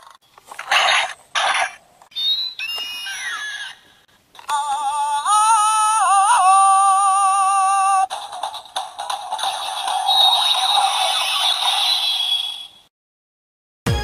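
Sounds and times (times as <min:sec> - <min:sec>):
falling whistling cry: 0:02.1 - 0:03.8.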